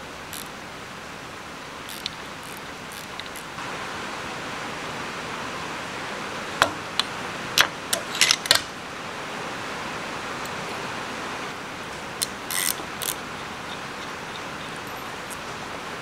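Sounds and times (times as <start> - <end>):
steady hiss: 0.0 - 16.0
metal tools clinking on steel: 14.8 - 15.4.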